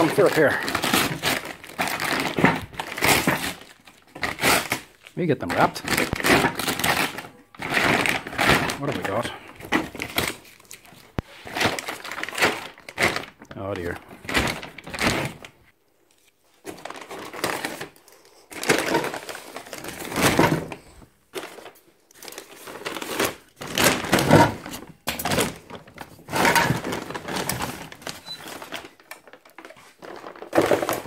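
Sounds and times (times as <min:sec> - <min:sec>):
plastic sack rustling: 0:00.0 - 0:15.6, 0:16.6 - 0:31.0.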